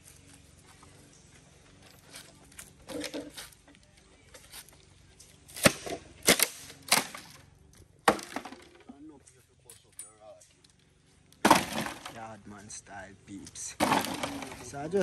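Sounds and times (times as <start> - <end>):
bamboo cracking under machete: 5.4 - 7.4, 8.0 - 8.8, 13.8 - 14.7.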